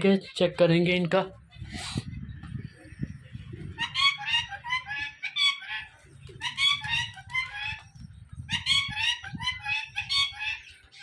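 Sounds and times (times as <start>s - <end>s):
birds squawky chirps: 1.4s - 11.0s.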